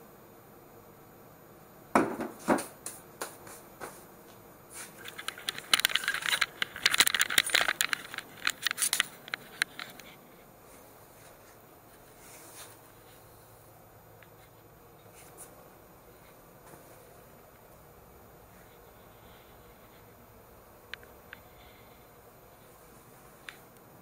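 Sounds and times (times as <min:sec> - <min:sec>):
light clattering and rattling: 0:04.8 - 0:10.3.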